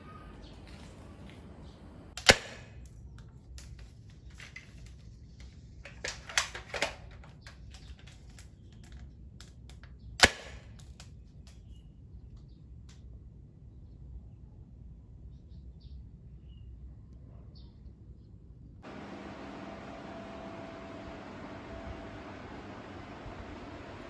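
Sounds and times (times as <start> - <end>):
airsoft rifle shots: 2.2 - 2.8, 10.2 - 10.8.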